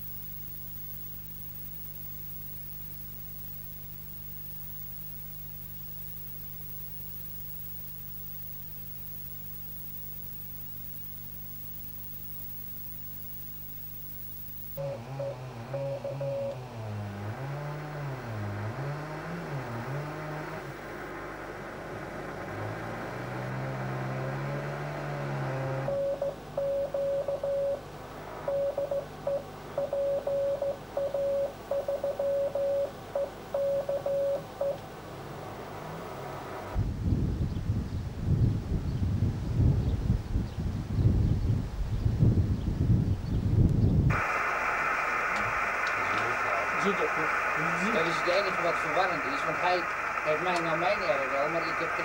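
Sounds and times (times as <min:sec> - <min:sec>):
receiver noise rush: 0:00.0 - 0:36.8, 0:44.1 - 0:52.0
low steady hum: 0:00.0 - 0:52.0
morse code tone: 0:06.6 - 0:16.6, 0:25.9 - 0:27.8, 0:28.4 - 0:34.8.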